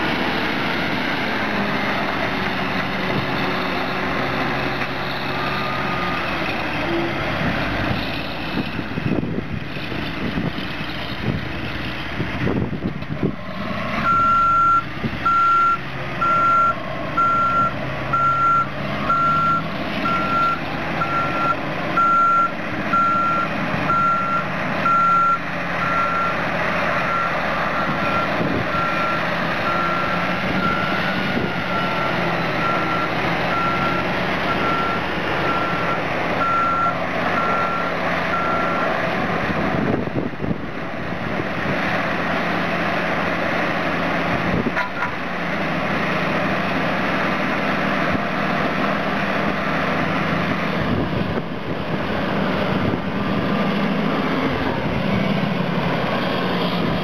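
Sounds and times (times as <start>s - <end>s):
diesel engine noise: 0.0s - 57.0s
truck back-up alarm beeping: 5.4s - 6.2s, 14.0s - 26.4s, 27.0s - 39.0s.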